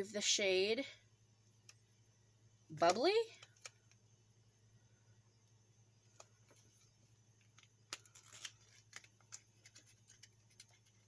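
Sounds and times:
low steady hum: 0.0s - 11.0s
small objects clicking and rustling: 2.9s - 4.0s, 6.1s - 11.0s.

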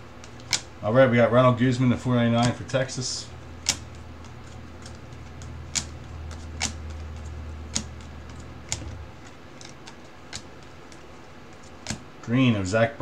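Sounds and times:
trading cards snapping: 0.2s - 0.8s, 2.4s - 2.7s, 3.6s - 12.1s.

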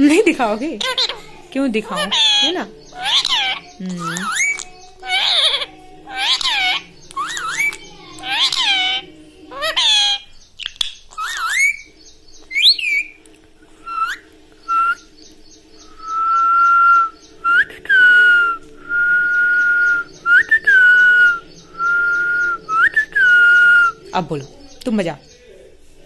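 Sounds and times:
parakeet chirps: 0.8s - 13.2s, 13.8s - 24.0s
person whistling long notes: 16.0s - 24.0s.

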